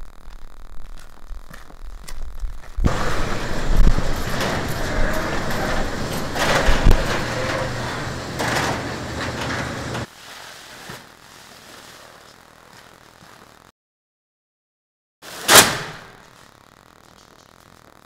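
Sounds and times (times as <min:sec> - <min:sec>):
door clunks: 0:02.9 - 0:10.1
electric opener motor hum: 0:02.9 - 0:10.1
overhead door panels rattling: 0:02.9 - 0:10.1.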